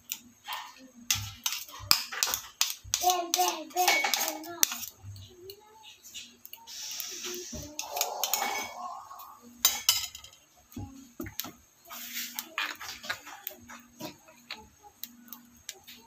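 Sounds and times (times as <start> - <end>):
dishes and utensils clinking: 0.4 - 5.0, 7.5 - 10.6, 11.2 - 14.7.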